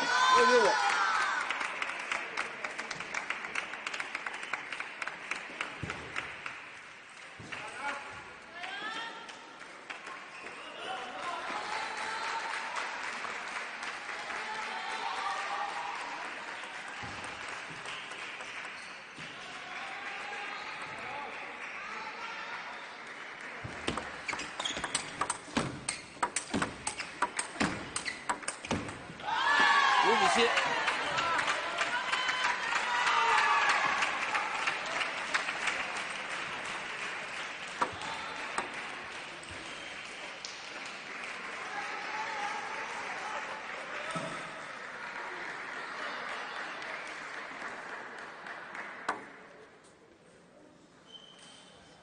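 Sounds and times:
people clapping: 0:00.0 - 0:49.9
shoes squeaking on floor: 0:23.7 - 0:29.2, 0:51.0 - 0:52.0
ping pong ball clicking: 0:23.9 - 0:29.0.

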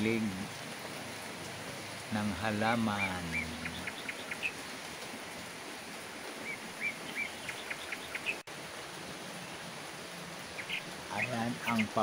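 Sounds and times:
rain falling on foliage: 0:00.0 - 0:12.0
bird chirping: 0:02.7 - 0:04.7, 0:06.4 - 0:08.5, 0:10.5 - 0:12.0.

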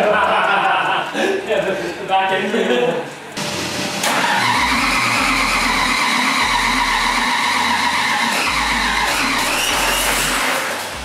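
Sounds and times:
engine running at high speed: 0:03.4 - 0:11.0.

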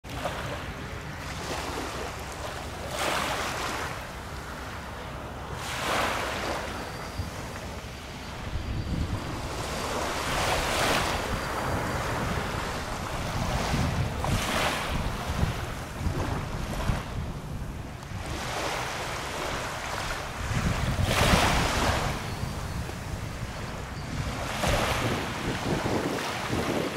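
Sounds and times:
waves lapping onto sand: 0:00.1 - 0:26.9
wind rumble on microphone: 0:05.5 - 0:26.9.

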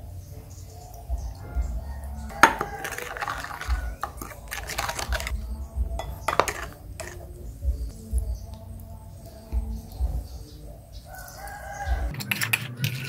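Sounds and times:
metal spoon clinking on ceramic bowl: 0:02.3 - 0:05.3, 0:06.0 - 0:07.2
liquid sauce pouring: 0:02.3 - 0:05.4.

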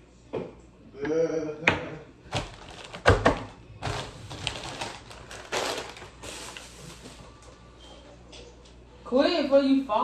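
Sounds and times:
plastic wrapper crinkling: 0:02.3 - 0:07.5.

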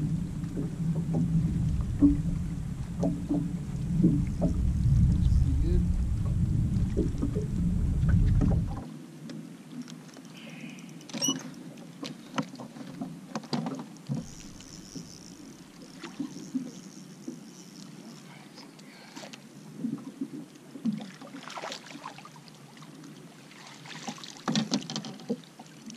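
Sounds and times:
wind buffeting microphone: 0:00.0 - 0:08.8
water against boat hull: 0:00.0 - 0:10.2, 0:11.1 - 0:18.4, 0:23.6 - 0:25.9.

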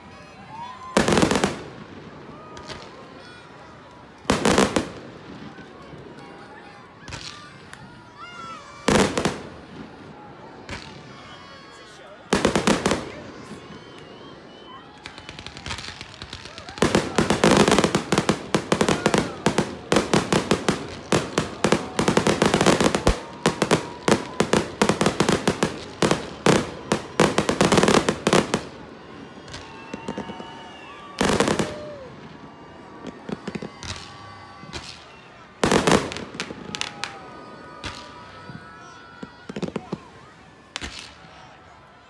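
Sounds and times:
fireworks bangs and cracks: 0:00.5 - 0:11.6, 0:12.2 - 0:41.6.

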